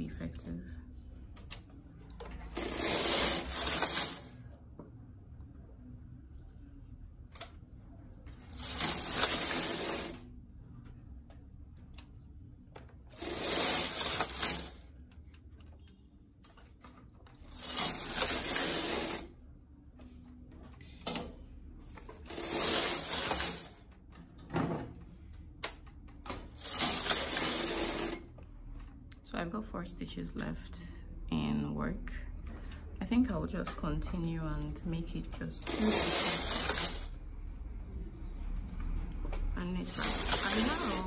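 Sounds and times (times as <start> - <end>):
knitting machine carriage sliding: 2.2 - 4.5, 8.3 - 10.3, 13.0 - 15.0, 16.5 - 19.3, 20.6 - 25.1, 25.7 - 28.3, 35.6 - 37.2, 39.8 - 41.0.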